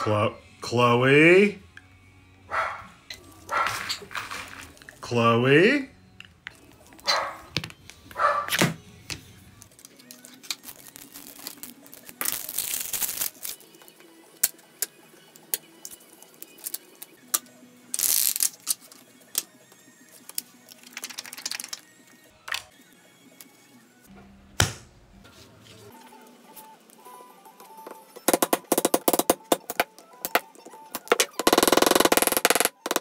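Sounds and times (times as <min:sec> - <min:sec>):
hands handling leather and tools: 0:03.4 - 0:04.9.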